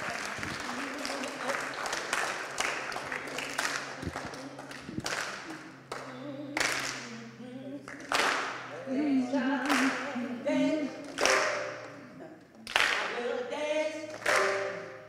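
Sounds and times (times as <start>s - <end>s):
congregation applauding: 0.0s - 7.1s, 7.9s - 8.7s, 11.0s - 12.0s, 12.6s - 13.2s, 14.1s - 15.0s.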